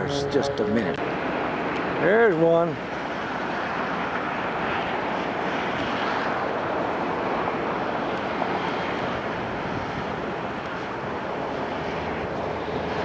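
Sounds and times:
jet airliner engines at takeoff thrust: 0.0s - 13.0s.

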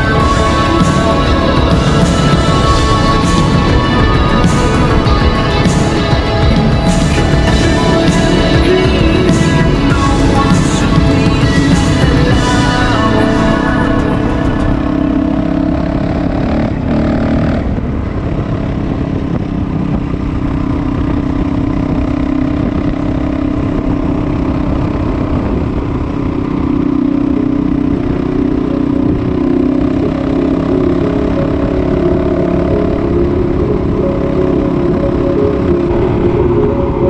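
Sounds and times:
road and wind noise: 0.0s - 37.0s
vehicle engine drone: 0.0s - 37.0s.

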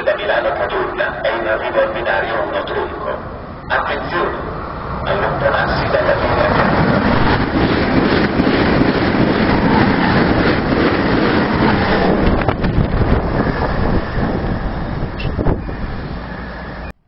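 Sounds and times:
distant train noise: 0.0s - 17.0s
train passing at speed: 0.0s - 17.0s
wind buffeting microphone: 3.2s - 16.8s.

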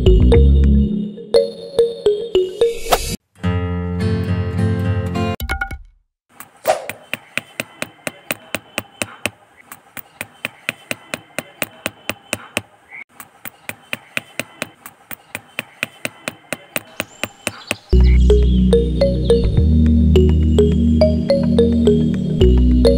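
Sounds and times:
hammer tapping wooden stick: 6.4s - 18.2s.

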